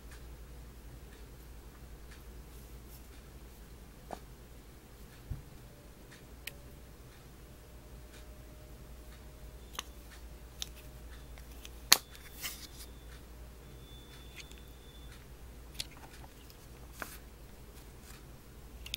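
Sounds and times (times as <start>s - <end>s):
plastic tube handling rustles: 11.5s - 12.9s, 15.8s - 18.2s.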